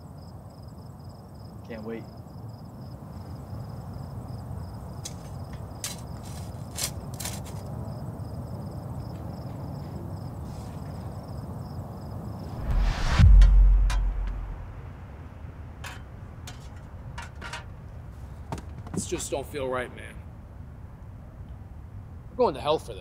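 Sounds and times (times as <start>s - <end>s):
crickets chirping: 0.0s - 22.3s
short clicks or rustles: 5.0s - 7.7s
low background rumble: 12.4s - 18.1s.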